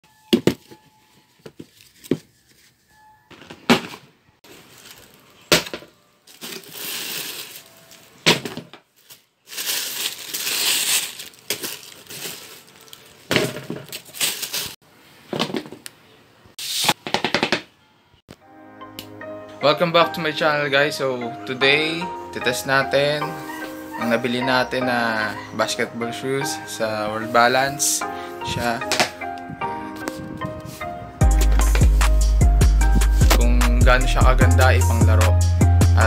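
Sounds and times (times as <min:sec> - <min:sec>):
tissue paper rustling: 0:00.9 - 0:03.0, 0:04.4 - 0:05.5, 0:06.3 - 0:08.3, 0:09.0 - 0:14.8.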